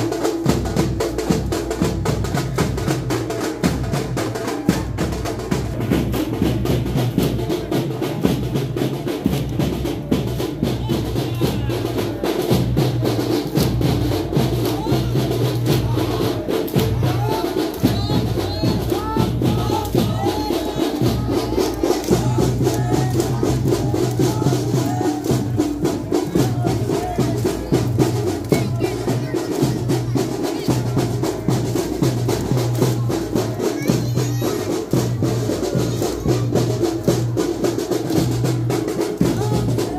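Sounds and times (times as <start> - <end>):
fast dense drumming: 0.0 - 39.9
crowd of men shouting: 14.3 - 31.0.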